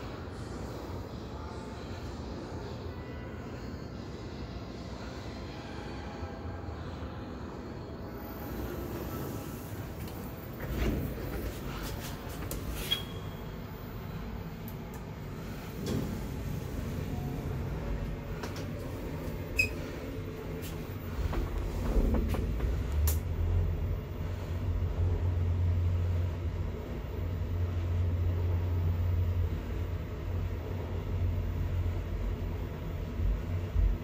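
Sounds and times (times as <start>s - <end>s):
elevator car rumbling: 8.0s - 34.0s.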